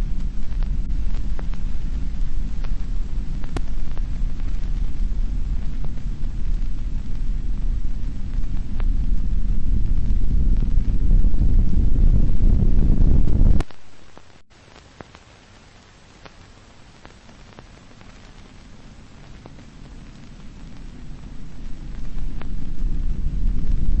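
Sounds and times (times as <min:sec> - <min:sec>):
deep loud rumble: 0:00.0 - 0:13.6, 0:20.0 - 0:24.0
film soundtrack hiss: 0:00.0 - 0:24.0.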